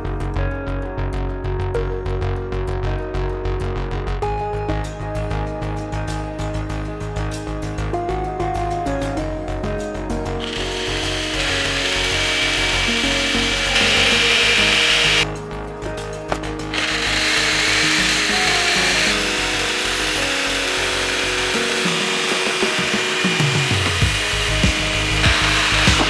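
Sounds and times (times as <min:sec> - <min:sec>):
background music: 0:00.0 - 0:26.0
band saw cutting metal: 0:10.4 - 0:15.3, 0:16.3 - 0:26.0.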